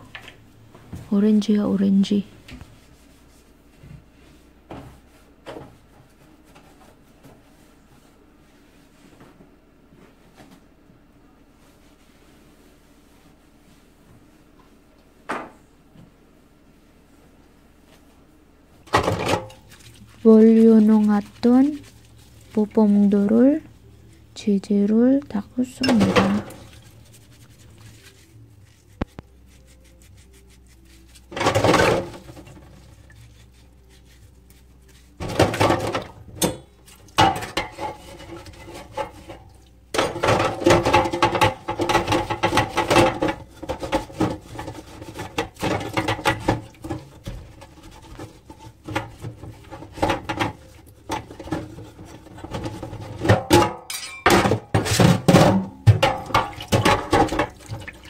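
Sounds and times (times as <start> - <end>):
mesh scrubber scrubbing metal: 18.9 - 53.4
metal parts clattering in basin: 53.3 - 57.5.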